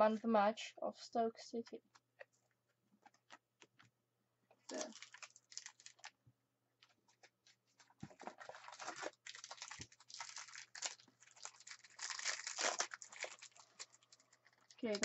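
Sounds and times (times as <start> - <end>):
foil pack tearing and crinkling: 4.7 - 6.1, 8.2 - 15.0.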